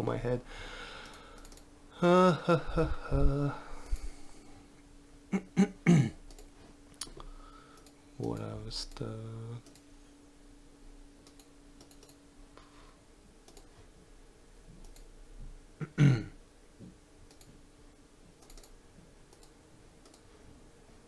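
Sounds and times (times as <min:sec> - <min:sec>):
computer clicks: 0:01.0 - 0:01.7, 0:06.2 - 0:09.0, 0:09.6 - 0:09.9, 0:11.2 - 0:12.2, 0:13.4 - 0:13.7, 0:14.8 - 0:15.1, 0:17.3 - 0:17.6, 0:18.4 - 0:20.3
person clearing throat: 0:05.3 - 0:06.2, 0:15.8 - 0:16.4.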